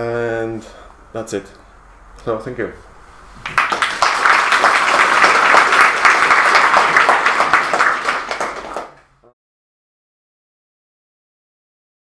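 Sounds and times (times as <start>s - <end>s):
audience applauding: 3.4s - 9.2s.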